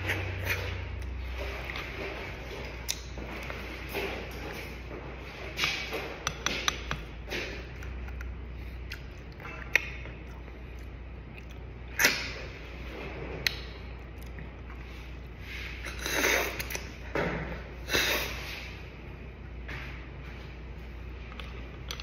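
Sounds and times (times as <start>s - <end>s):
person slurping: 15.5s - 17.0s, 17.8s - 18.7s.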